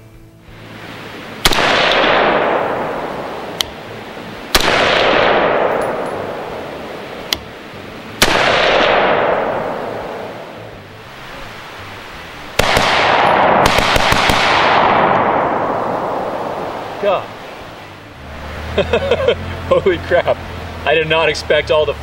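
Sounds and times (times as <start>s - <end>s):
rifle shots with echo: 1.4s - 3.8s, 4.5s - 6.9s, 8.2s - 10.6s, 12.6s - 17.0s
sharp click: 3.6s - 3.8s, 7.3s - 7.5s.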